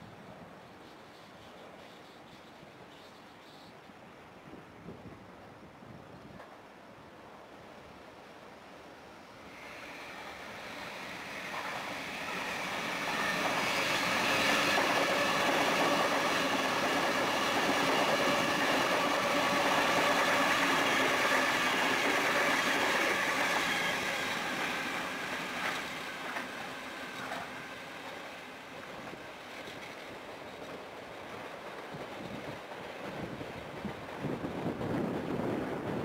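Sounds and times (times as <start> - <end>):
electric train passing: 9.0 - 36.0.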